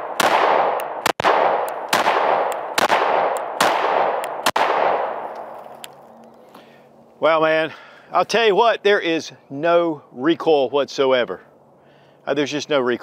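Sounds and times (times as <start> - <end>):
pistol shots echoing: 0.0 - 5.4.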